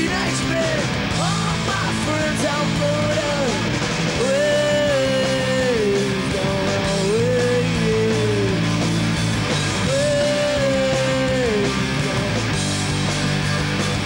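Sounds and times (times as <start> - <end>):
punk rock band playing live: 0.0 - 14.0
woman singing raw vocals: 4.2 - 8.6.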